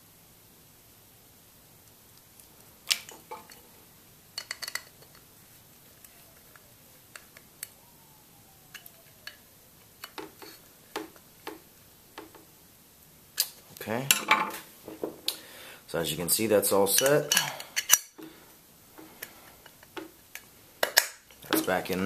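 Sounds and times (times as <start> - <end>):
metal parts clicking on workbench: 4.4 - 5.2.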